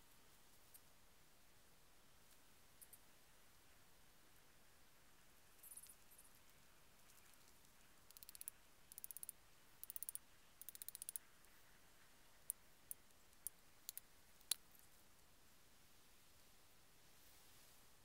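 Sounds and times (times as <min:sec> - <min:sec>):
faint sharp clicking: 0:07.1 - 0:11.3, 0:12.4 - 0:15.0.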